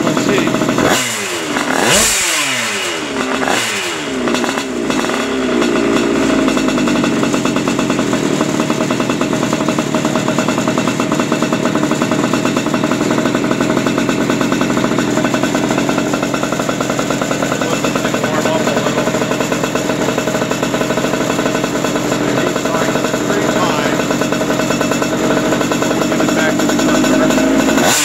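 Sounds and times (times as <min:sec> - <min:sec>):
two-stroke kart engine revving: 0:00.0 - 0:28.0.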